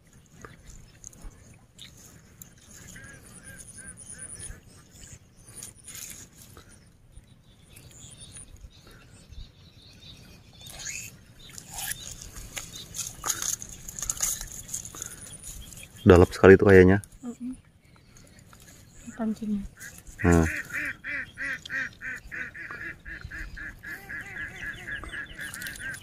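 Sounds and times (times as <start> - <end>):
faint bird chirping: 0.0 - 26.0
soft rustles and clicks: 11.4 - 16.1.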